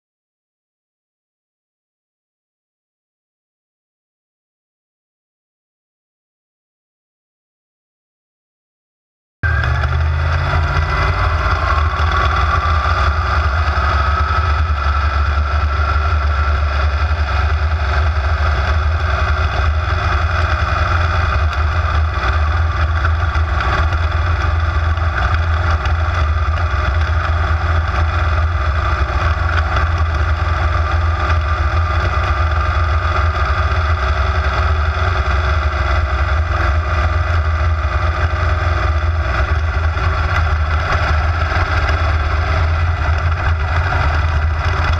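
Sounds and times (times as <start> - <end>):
race car engine at speed: 9.4 - 44.9.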